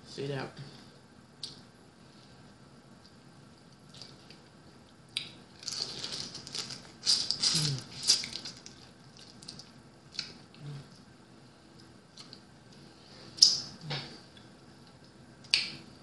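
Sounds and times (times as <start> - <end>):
crab shell crackling and snapping: 5.2 - 10.4.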